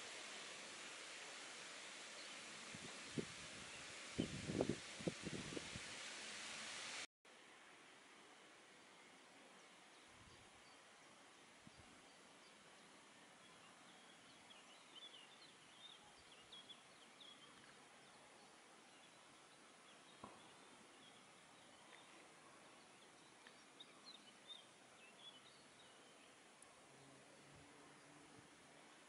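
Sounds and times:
faint steady hiss: 0.0s - 29.0s
small birds chirping: 9.6s - 29.0s.

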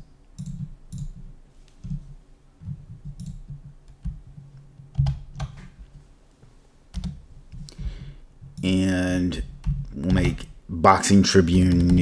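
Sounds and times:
computer keyboard typing: 0.4s - 5.6s, 6.9s - 7.7s, 11.5s - 12.0s.

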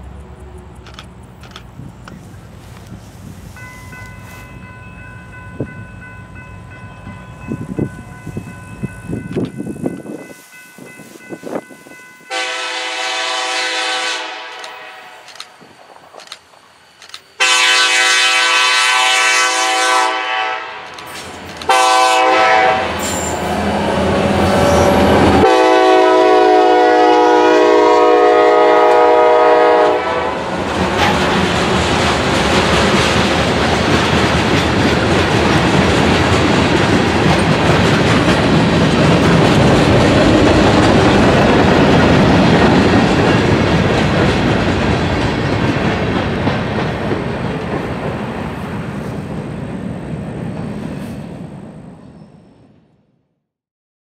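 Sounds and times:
train wheels rumbling on rail: 0.0s - 52.5s
train horn blasts: 12.3s - 15.3s, 17.4s - 21.1s, 21.7s - 30.5s.

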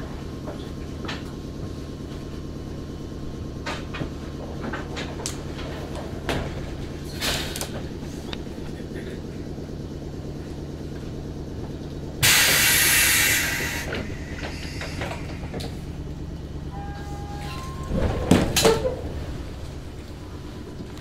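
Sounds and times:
train car low hum: 0.0s - 21.0s
compressed air hiss: 12.2s - 15.5s
short tones: 16.6s - 18.0s
loud clunks: 17.8s - 19.2s.

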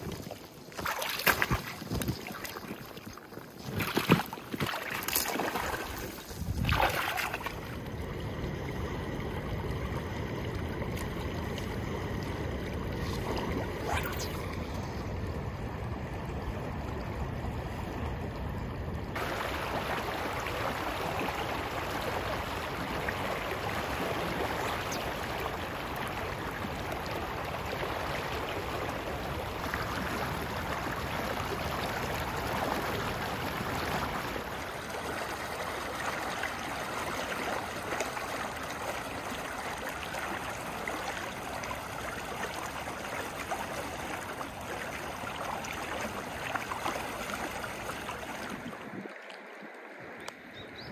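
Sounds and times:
fast river current rushing: 19.2s - 50.1s.

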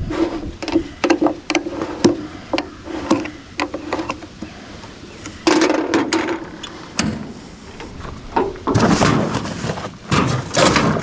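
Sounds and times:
metal clatter: 8.3s - 11.0s.

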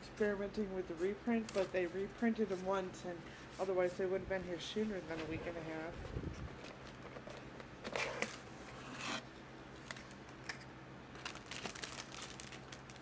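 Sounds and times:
rustling tear: 11.1s - 13.0s.

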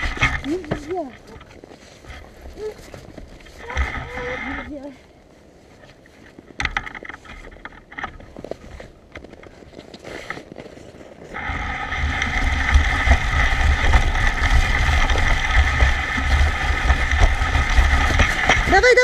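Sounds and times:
wind buffeting microphone: 11.4s - 19.0s.

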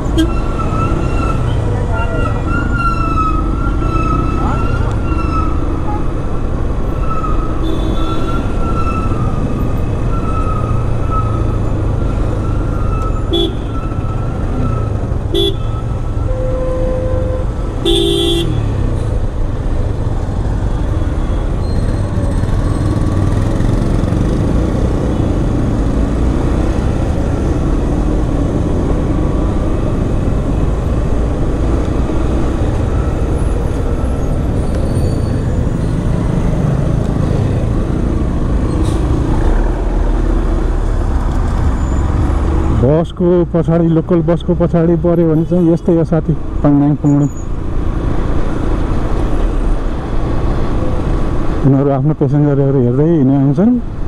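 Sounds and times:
city road traffic: 0.0s - 54.0s
motorcycle engine and road noise: 0.0s - 54.0s
vehicle horns tooting: 0.1s - 0.9s, 7.6s - 8.6s, 13.0s - 18.8s.

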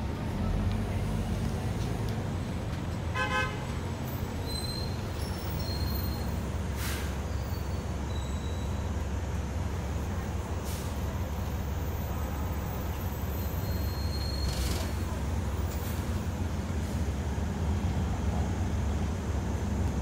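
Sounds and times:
bus engine and road rumble: 0.0s - 20.0s
short air hisses: 6.7s - 7.2s.

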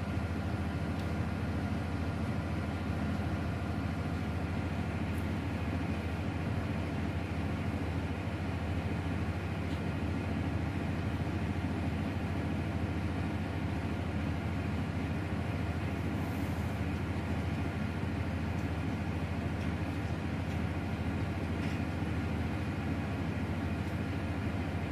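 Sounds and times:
engine machinery drone: 0.0s - 24.9s.

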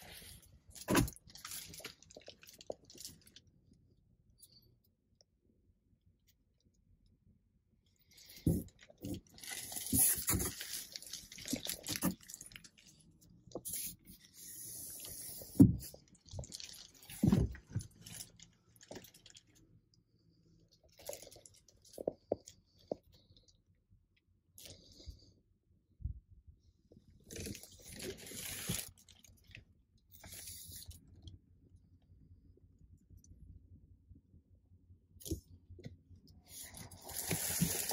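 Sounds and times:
phone rustling and crinkling: 0.0s - 3.8s, 8.2s - 19.8s, 27.0s - 31.1s.

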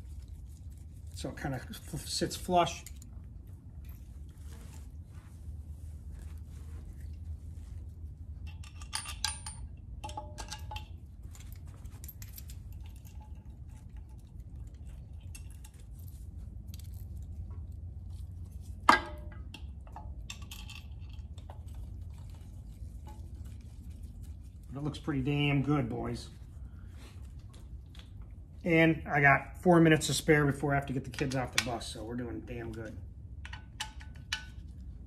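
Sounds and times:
low hum: 0.0s - 31.2s
metal clinks and taps: 8.4s - 17.6s, 18.5s - 22.4s, 32.8s - 34.9s.

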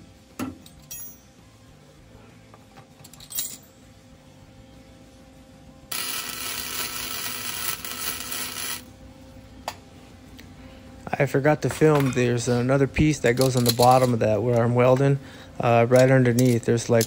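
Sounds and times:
welding arc crackling hiss: 5.9s - 8.9s.

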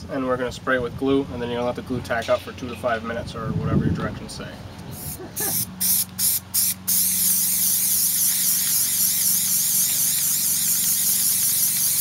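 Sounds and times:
aerosol spray hissing: 5.0s - 12.0s.

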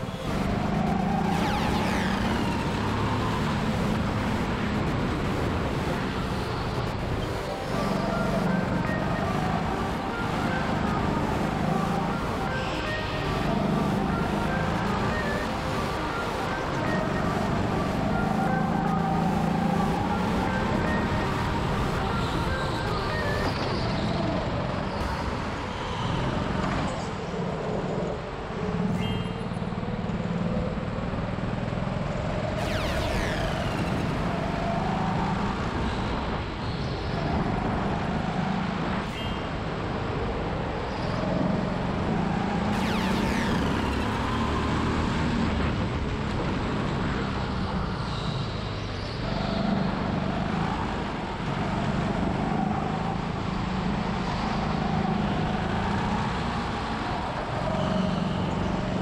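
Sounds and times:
high-pitched sweeping sound: 32.6s - 34.6s, 42.7s - 45.0s.

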